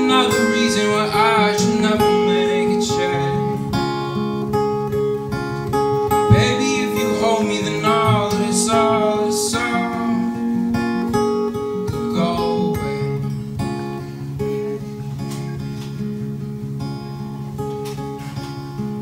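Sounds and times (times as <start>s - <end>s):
man singing: 0.0s - 4.2s, 6.2s - 10.6s, 11.7s - 13.2s
acoustic guitar chords: 0.0s - 19.0s.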